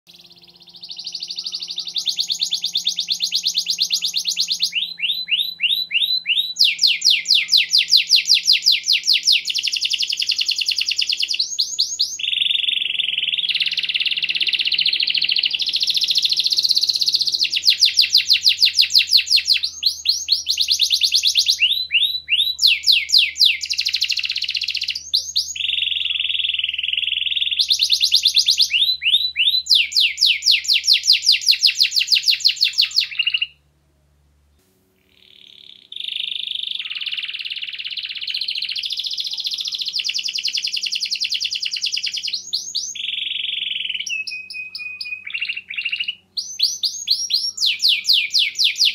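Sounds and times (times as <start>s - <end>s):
canary singing trills: 0.1s - 33.6s, 35.0s - 48.9s.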